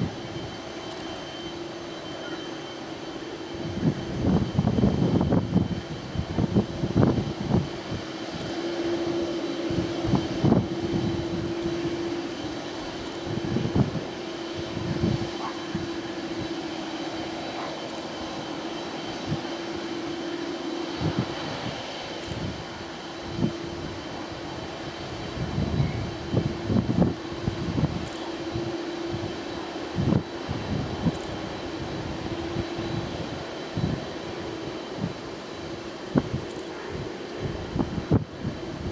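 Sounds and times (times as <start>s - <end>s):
jet engines hum and whine: 0.0s - 38.9s
gusty low rumbles: 3.6s - 16.5s.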